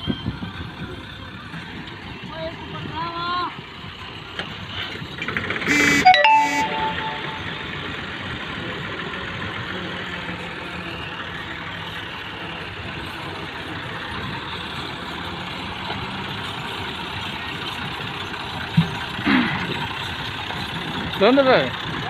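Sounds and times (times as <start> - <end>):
tractor diesel engine running: 7.6 - 22.0.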